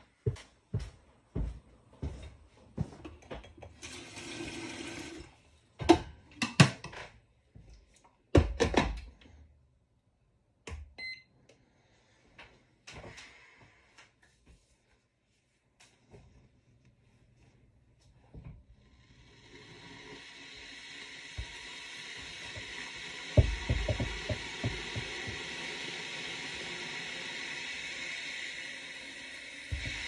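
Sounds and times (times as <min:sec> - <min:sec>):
running water: 0:19.4 - 0:30.0
sharp knocks and clunks: 0:23.4 - 0:25.4.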